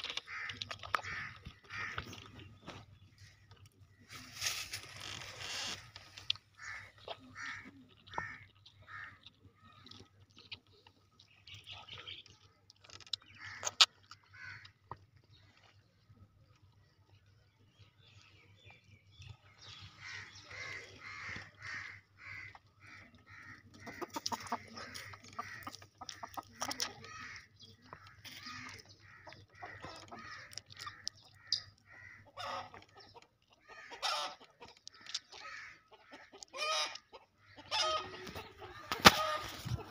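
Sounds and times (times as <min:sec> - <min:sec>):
chickens clucking: 0:18.6 - 0:39.9.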